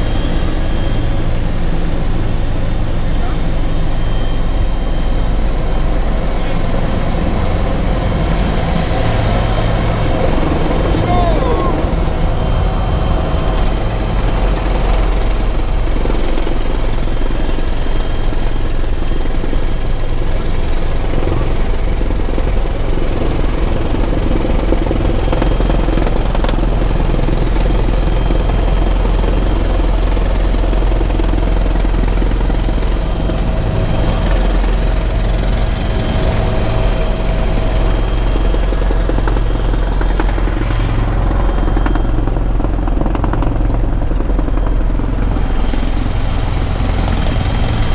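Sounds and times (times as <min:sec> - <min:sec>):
helicopter engine and rotor drone: 0:00.0 - 0:47.9.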